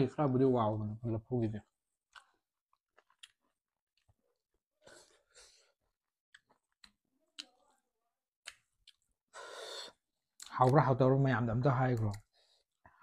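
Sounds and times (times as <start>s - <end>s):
faint chewing: 2.0s - 9.3s.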